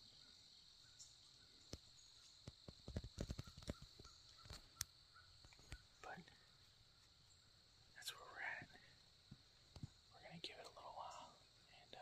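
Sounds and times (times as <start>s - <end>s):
faint knocks and clicks: 1.7s - 5.8s
steady high hiss: 4.1s - 12.0s.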